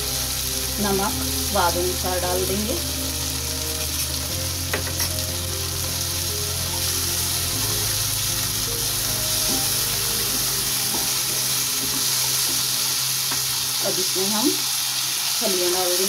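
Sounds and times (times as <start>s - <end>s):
masala sizzling in hot oil: 0.0s - 16.0s.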